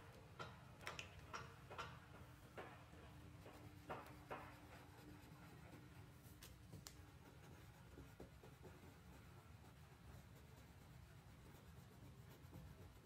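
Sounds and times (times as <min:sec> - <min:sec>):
crayon scratching on paper: 0:03.5 - 0:13.0.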